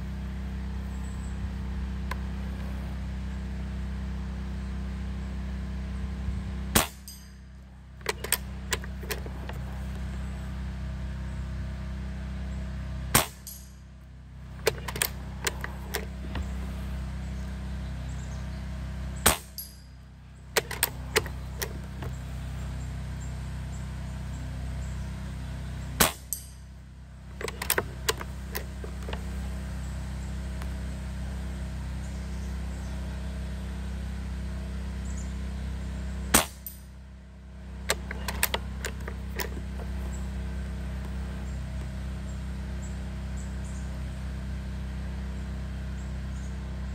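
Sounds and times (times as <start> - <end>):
air rifle shots: 6.8 - 7.2
rifle bolt clicks: 14.6 - 16.5, 20.6 - 22.1, 27.4 - 29.2, 37.9 - 40.0.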